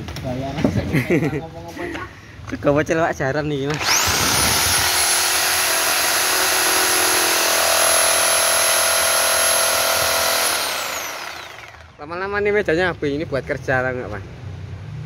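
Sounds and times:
reciprocating saw cutting wood: 3.7s - 12.0s.

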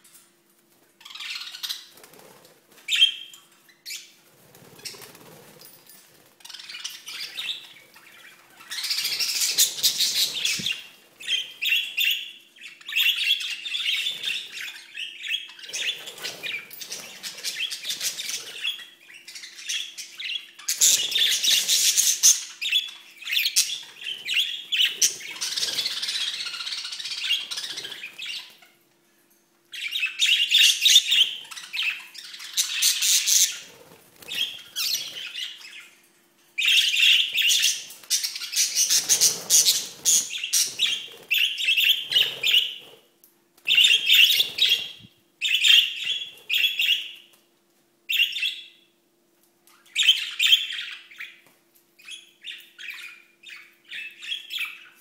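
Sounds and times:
budgerigars chattering and chirping: 36.6s - 43.0s.

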